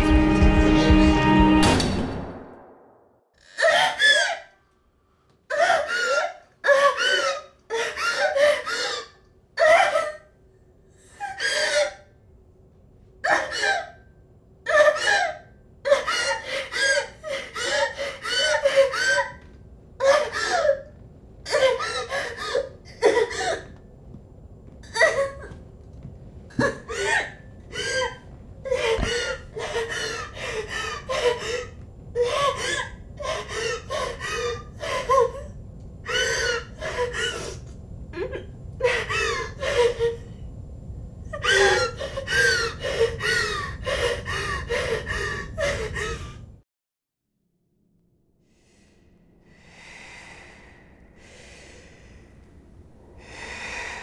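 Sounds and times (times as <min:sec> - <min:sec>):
woman sobbing and gasping: 0:14.7 - 0:19.4, 0:26.5 - 0:40.3.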